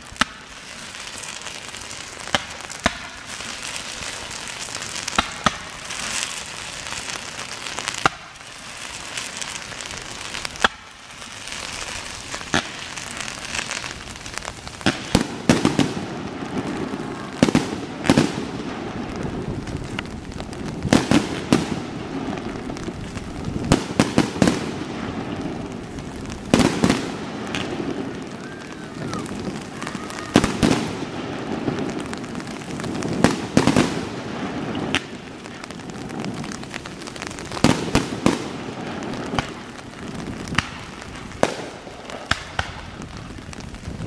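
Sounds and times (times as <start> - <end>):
fireworks crackling: 0.0 - 44.0
firework shells bursting: 2.0 - 44.0.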